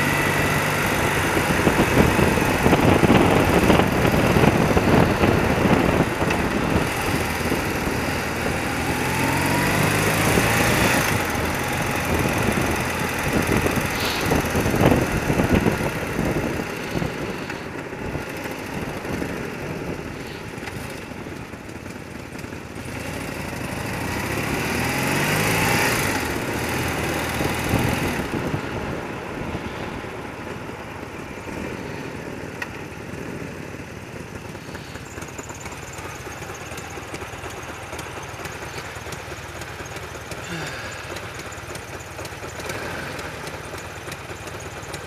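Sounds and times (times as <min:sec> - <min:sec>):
wind rushing over microphone: 0:00.0 - 0:20.7, 0:25.2 - 0:30.4
motorcycle engine running: 0:00.0 - 0:45.0.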